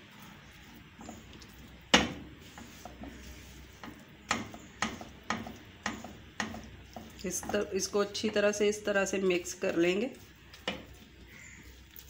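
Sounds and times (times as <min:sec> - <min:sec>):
spatula knocking on frying pan: 0:01.8 - 0:03.2, 0:03.8 - 0:08.6, 0:10.6 - 0:11.0.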